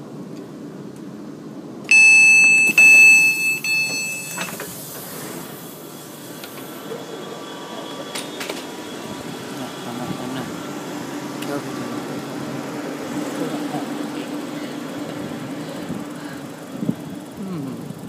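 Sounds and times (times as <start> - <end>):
train door warning beeps: 1.9 - 5.0.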